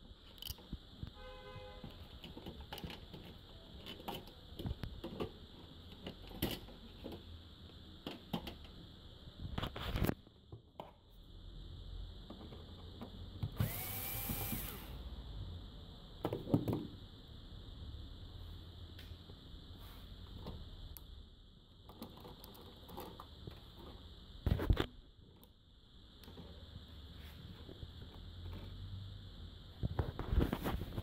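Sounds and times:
small power tool motor whirring: 0:13.6 - 0:15.0.

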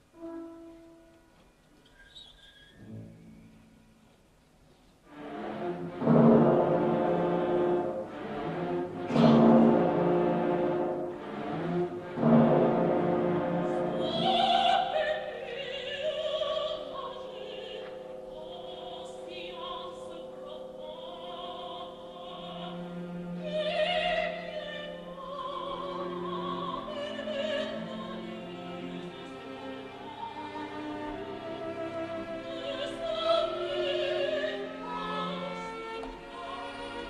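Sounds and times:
orchestral accompaniment: 0:00.0 - 0:01.6, 0:05.1 - 0:37.0
operatic soprano singing: 0:13.5 - 0:37.0.

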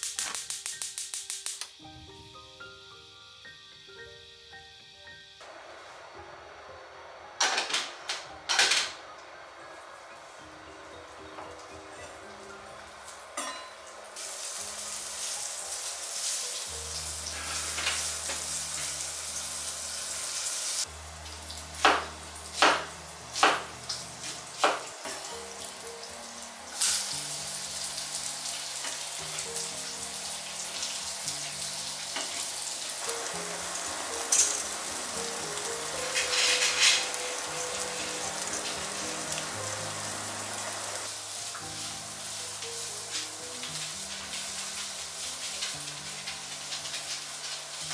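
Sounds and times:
food sizzling in a frying pan: 0:00.0 - 0:06.4, 0:08.5 - 0:47.9
soft background music: 0:00.0 - 0:47.9.

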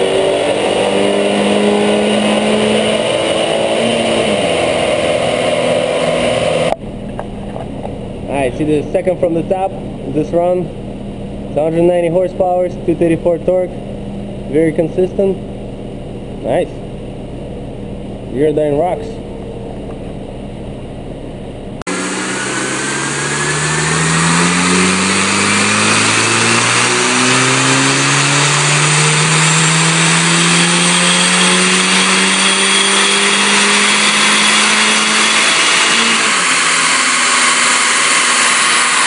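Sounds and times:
car engine revving at full throttle: 0:00.0 - 0:07.7, 0:21.8 - 0:39.0
high whine: 0:00.0 - 0:39.0.

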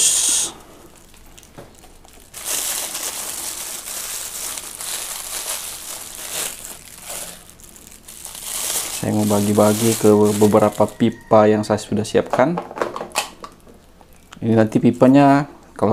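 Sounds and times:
package wrapping crinkling: 0:00.9 - 0:11.3.

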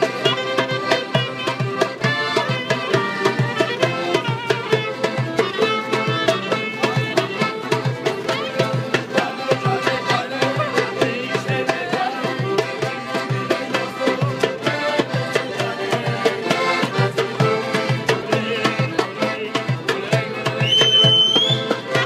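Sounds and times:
clarinet: 0:00.0 - 0:09.0, 0:20.4 - 0:22.0
accordion: 0:00.0 - 0:22.0
hand drum beat: 0:00.0 - 0:22.0.

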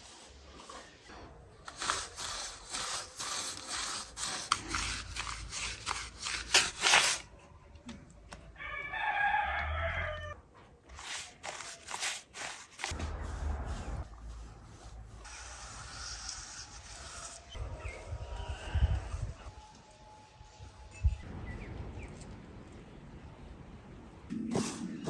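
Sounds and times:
brush rubbing wet cement: 0:01.7 - 0:07.2, 0:10.9 - 0:17.6
rooster crowing: 0:08.6 - 0:10.4.

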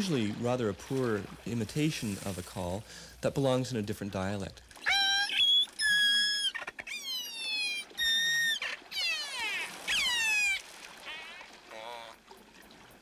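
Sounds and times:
killer whale calls underwater: 0:04.8 - 0:12.3.

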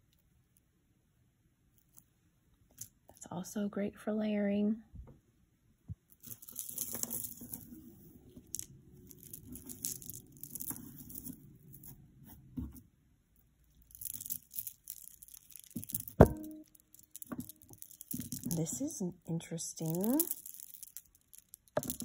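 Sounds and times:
beads rustling and clicking: 0:06.1 - 0:12.7, 0:13.4 - 0:22.0.

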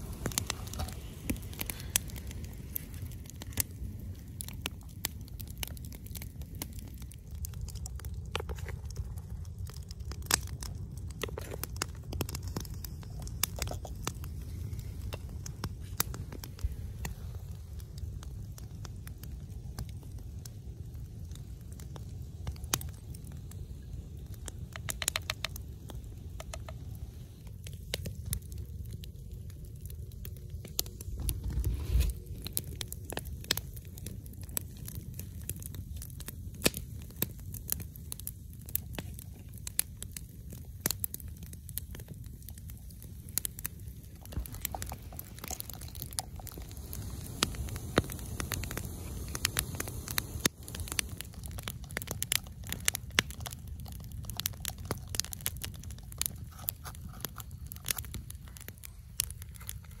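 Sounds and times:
low steady rumble: 0:00.0 - 0:35.1, 0:42.1 - 0:53.0
campfire crackling and popping: 0:00.0 - 1:00.0.

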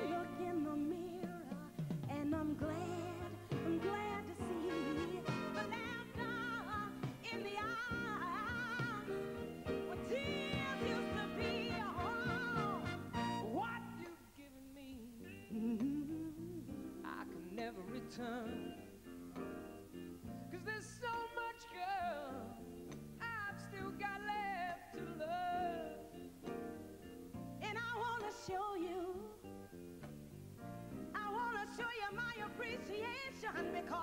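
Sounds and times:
live backing band: 0:00.0 - 0:14.4, 0:15.0 - 0:34.0
man and woman singing: 0:00.0 - 0:18.8, 0:31.2 - 0:34.0.

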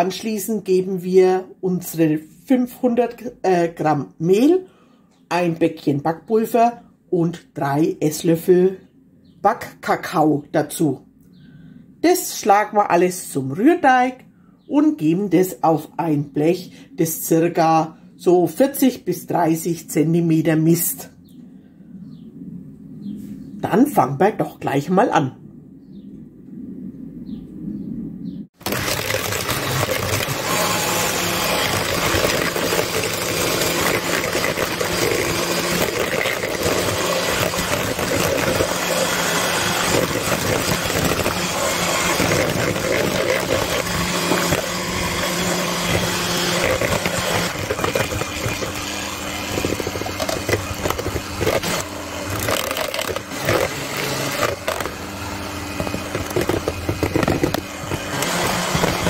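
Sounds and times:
electric hand mixer whisking batter: 0:28.6 - 0:59.0.

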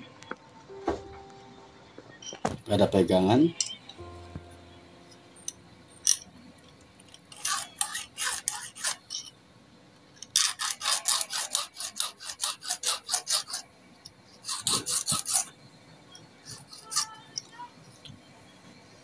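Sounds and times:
hand file rasping on metal: 0:07.3 - 0:09.3, 0:10.3 - 0:13.7, 0:14.4 - 0:15.5, 0:16.4 - 0:17.2.

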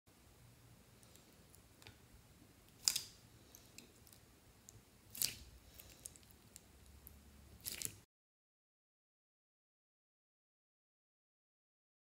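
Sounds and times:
wet slime squishes: 0:02.6 - 0:08.1.

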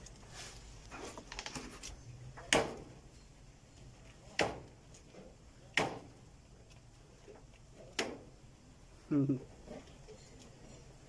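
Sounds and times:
sharp knocks: 0:05.8 - 0:06.1.

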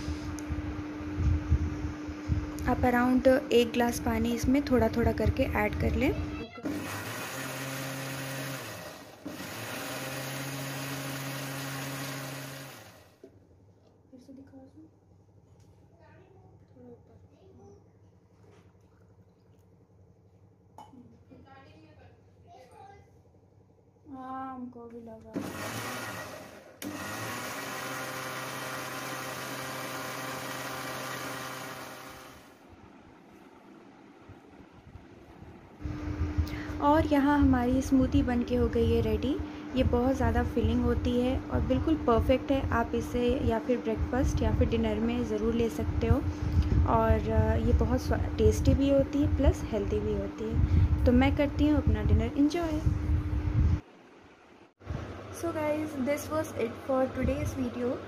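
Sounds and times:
mixer grinder motor hum: 0:00.0 - 0:13.4, 0:25.3 - 0:53.8
electric blender whirring: 0:03.9 - 0:13.3, 0:25.4 - 0:32.6.

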